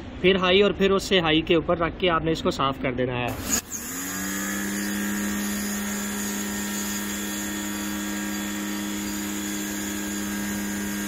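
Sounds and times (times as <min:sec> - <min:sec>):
pressure washer motor hum: 0:03.3 - 0:11.0.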